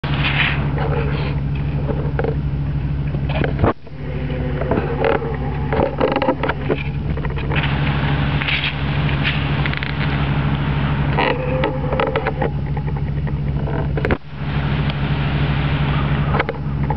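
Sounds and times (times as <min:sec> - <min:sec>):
engine humming: 0:00.0 - 0:16.9.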